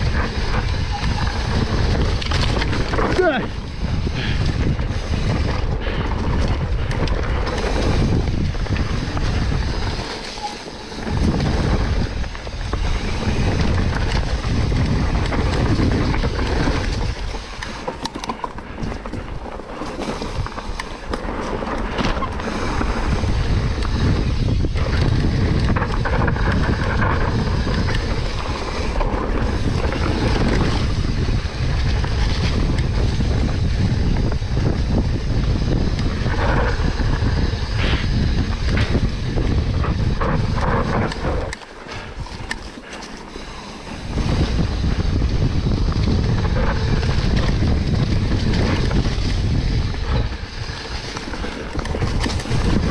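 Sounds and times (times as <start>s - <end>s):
bike knocks and rattles: 0.0s - 52.9s
bike tyre noise: 0.0s - 52.9s
wind buffeting microphone: 0.0s - 52.9s.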